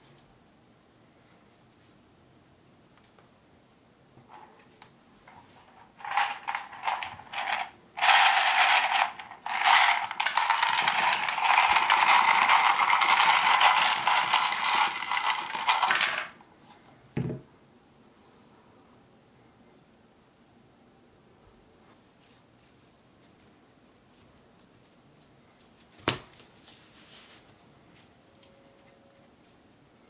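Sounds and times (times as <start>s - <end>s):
small plastic parts clattering: 5.8s - 16.4s.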